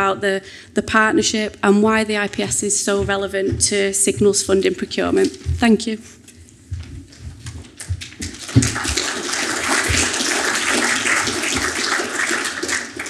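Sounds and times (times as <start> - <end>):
low knocks and bumps: 1.2 - 5.9
audience applauding: 8.0 - 13.0.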